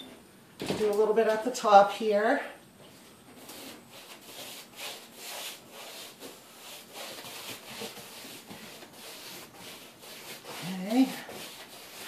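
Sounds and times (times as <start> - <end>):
paintbrush scrubbing over paper: 3.4 - 12.0.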